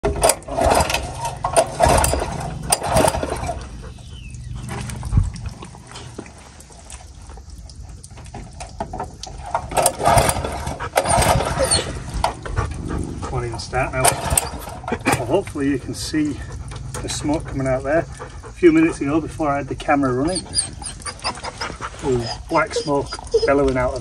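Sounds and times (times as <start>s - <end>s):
pump engine running roughly: 0.0s - 6.0s, 9.3s - 19.8s.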